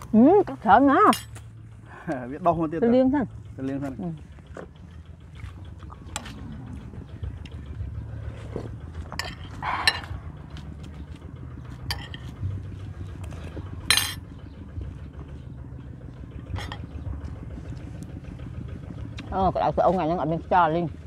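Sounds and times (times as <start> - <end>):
spoon clinking against plates: 13.9 - 14.2.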